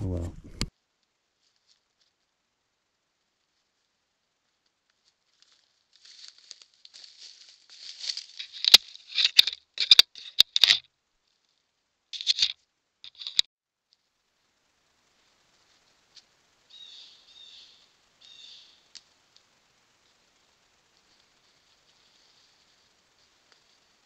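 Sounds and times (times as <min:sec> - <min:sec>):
gear rustling and scraping: 0:05.4 - 0:10.8, 0:12.2 - 0:13.5.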